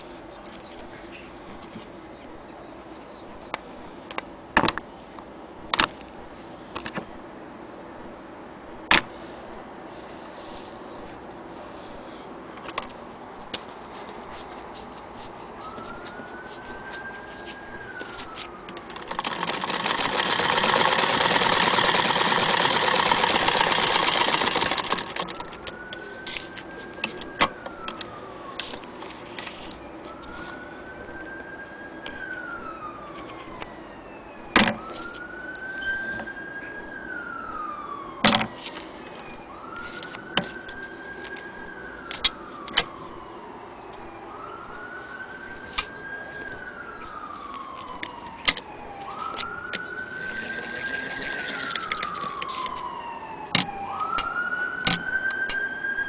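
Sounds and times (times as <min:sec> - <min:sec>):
distant siren wailing: 0:01.8 - 0:03.9, 0:14.2 - 0:56.0
sewing machine clattering: 0:18.9 - 0:25.3.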